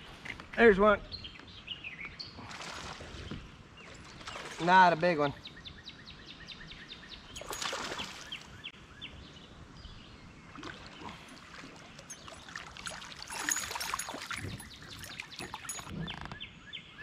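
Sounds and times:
water splashing and sloshing: 2.4 - 5.1, 7.3 - 8.7, 10.4 - 16.3.

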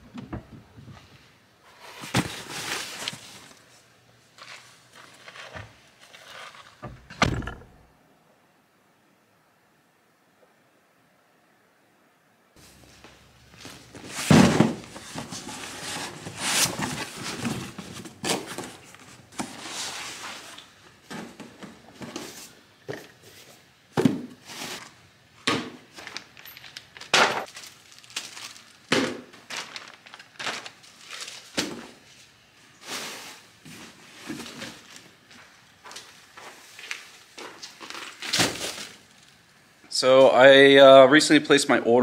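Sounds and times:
items clattering on concrete floor: 12.6 - 39.4
plastic bags crinkling: 25.9 - 32.1, 36.1 - 39.4.

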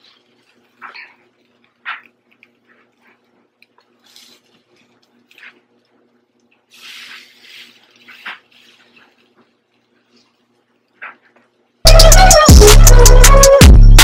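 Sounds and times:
short sizzling hiss: 6.7 - 8.9.

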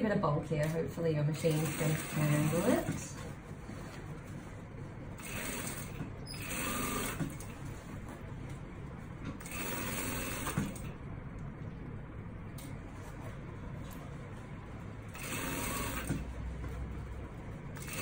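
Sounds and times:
steady low hum: 0.0 - 18.0
sewing machine stitching: 1.4 - 3.1, 5.2 - 7.5, 9.4 - 10.9, 15.1 - 16.3, 17.8 - 18.0.

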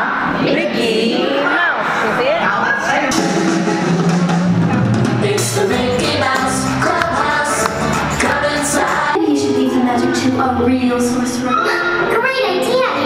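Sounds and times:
singing over a drum beat: 3.1 - 11.6.

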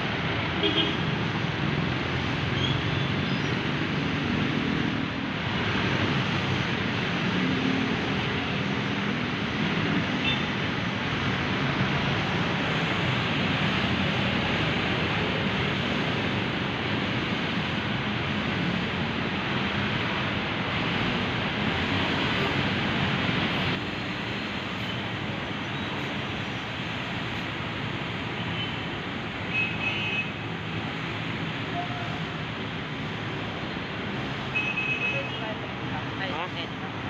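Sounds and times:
road noise: 0.0 - 37.0
vehicle engines passing: 0.0 - 37.0.

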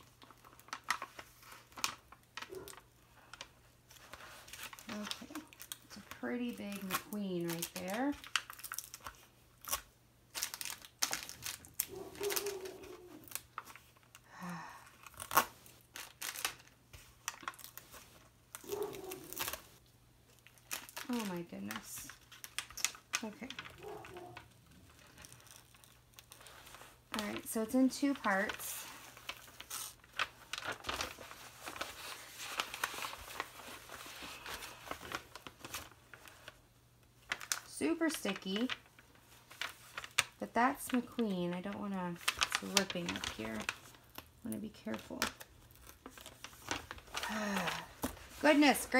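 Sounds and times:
plastic film crackling: 0.0 - 48.9
plastic sheet crinkling: 0.0 - 48.9
sticky tape ripping: 15.1 - 16.6, 18.6 - 19.8.

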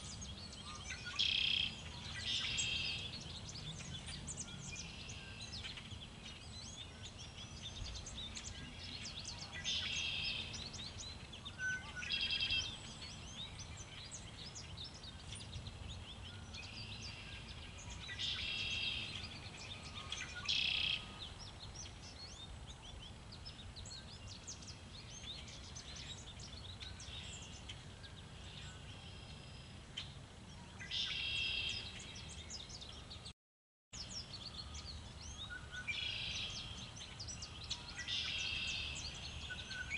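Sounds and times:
wind rumble on microphone: 0.0 - 29.0
songbirds chirping: 0.0 - 33.3, 34.0 - 39.9.

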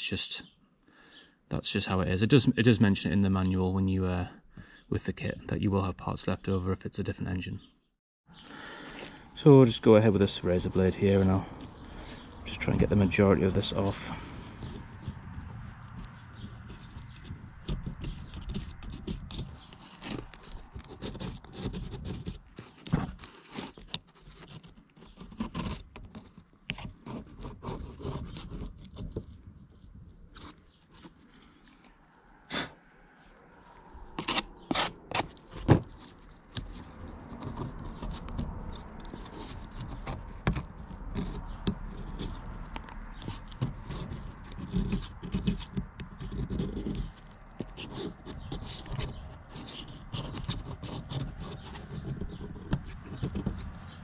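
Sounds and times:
razor blade scraping metal: 34.2 - 35.5.

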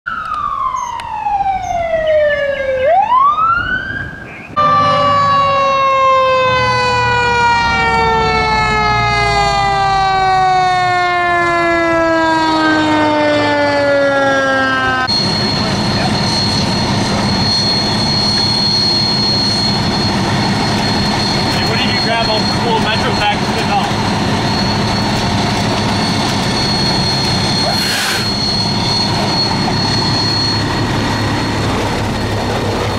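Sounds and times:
fire engine running noise: 0.1 - 32.9
fire engine siren wailing: 0.1 - 32.9
thin high whine: 15.0 - 32.9.

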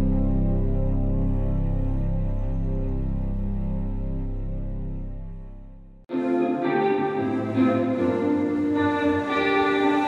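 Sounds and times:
ambient music with low tones: 0.0 - 10.0
music track: 0.0 - 10.0.

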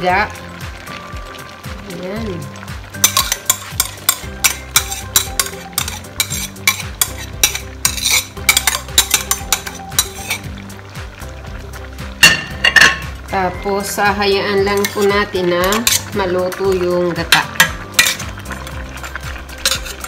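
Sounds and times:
metal ladle scraping ceramic bowl: 3.0 - 10.5, 14.8 - 15.1, 17.6 - 20.0.

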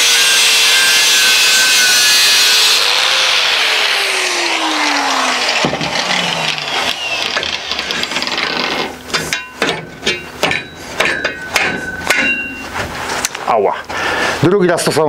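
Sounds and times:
angle grinder winding down: 0.0 - 9.1
steel clattering on workbench: 8.7 - 12.9.

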